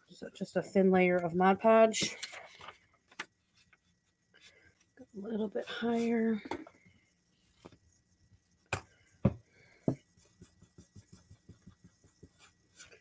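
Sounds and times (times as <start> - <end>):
brush knocking on wood: 9.2 - 13.0.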